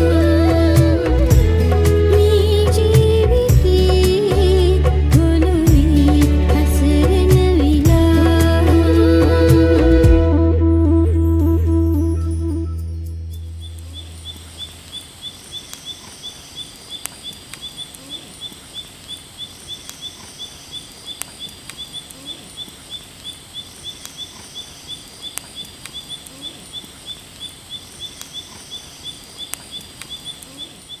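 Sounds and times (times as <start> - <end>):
music: 0.0 - 13.6
crickets chirping: 13.6 - 31.0.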